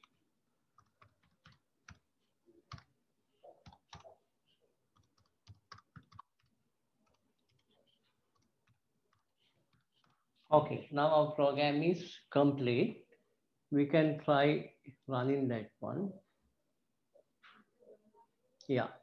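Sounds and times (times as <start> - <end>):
computer keyboard keystrokes: 5.0 - 7.6.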